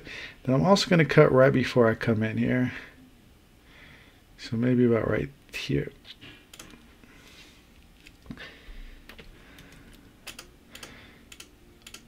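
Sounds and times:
keyboard keys clicking: 0:09.1 - 0:12.0.

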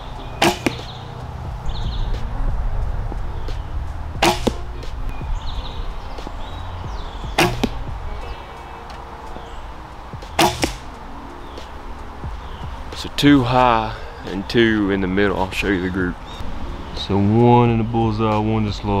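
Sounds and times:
arrow thudding into target: 0:00.4 - 0:00.9, 0:04.2 - 0:05.0, 0:07.4 - 0:07.9, 0:10.4 - 0:10.9
bowstring snapping: 0:00.4 - 0:00.9, 0:04.2 - 0:05.0, 0:07.4 - 0:07.9, 0:10.3 - 0:10.9.

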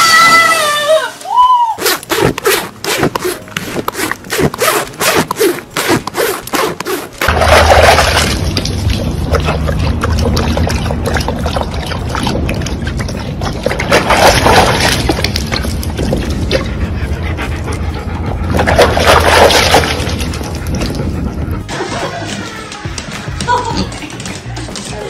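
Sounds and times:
dogs lapping water: 0:05.2 - 0:22.4
water splashing in bucket: 0:06.6 - 0:16.8, 0:18.5 - 0:21.1
low hum: 0:07.2 - 0:21.7.

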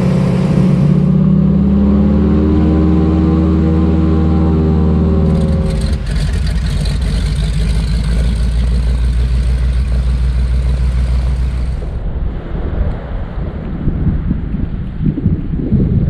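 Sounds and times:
propeller plane engine running: 0:00.0 - 0:12.1.

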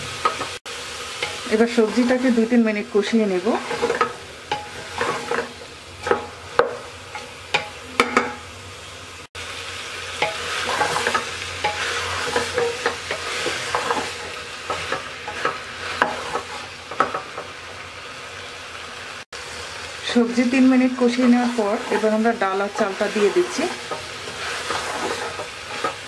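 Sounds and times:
vegetables sizzling in oil: 0:00.0 - 0:26.0
spatula scraping metal pot: 0:01.2 - 0:02.4, 0:03.4 - 0:08.2, 0:10.2 - 0:17.2, 0:21.1 - 0:26.0.

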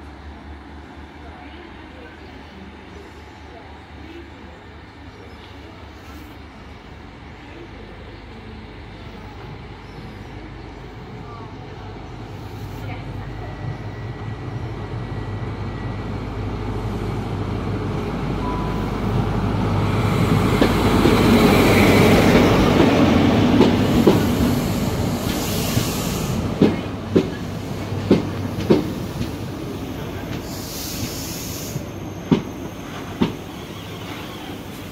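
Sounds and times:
diesel train engine hum: 0:00.0 - 0:34.9
train wheels clicking over rail joints: 0:22.2 - 0:29.5, 0:32.2 - 0:33.4
short bursts of hiss: 0:30.4 - 0:31.9.

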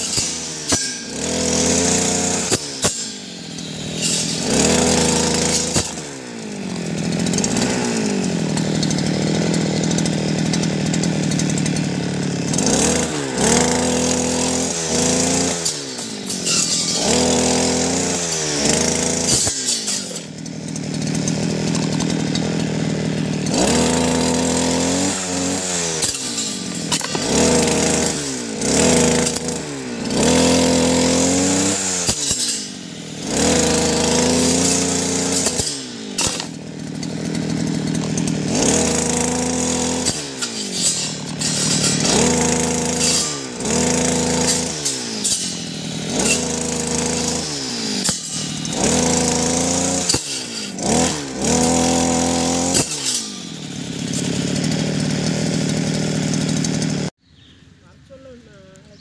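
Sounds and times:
brush cutter engine revving: 0:00.0 - 0:57.2
blade clicking on stems: 0:12.6 - 0:20.4, 0:23.5 - 0:55.6.

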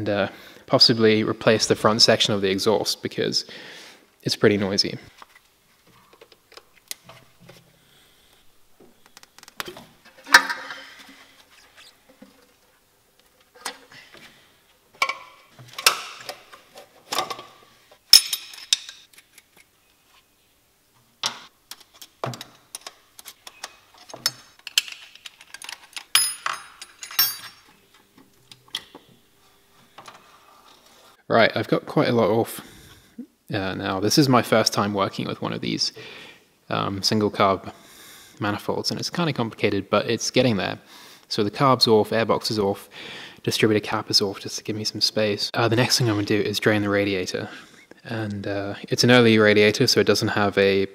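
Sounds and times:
hand tools and metal parts clinking: 0:15.0 - 0:19.4, 0:21.7 - 0:29.0.

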